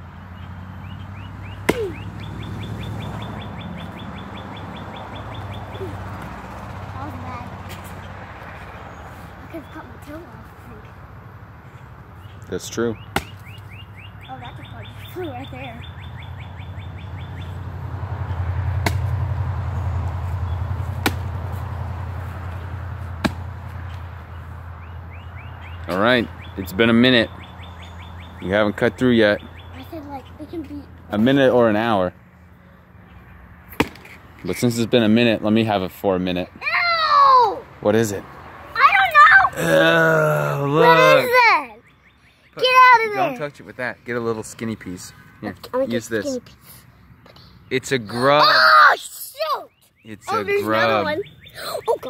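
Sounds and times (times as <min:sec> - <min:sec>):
bird chirping: 0:00.0 - 0:18.5, 0:22.3 - 0:31.2, 0:40.7 - 0:48.2, 0:49.6 - 0:52.0
axe chopping log: 0:01.6 - 0:02.0, 0:13.1 - 0:13.4, 0:18.8 - 0:19.2, 0:20.9 - 0:21.4, 0:23.2 - 0:23.5, 0:33.7 - 0:34.2.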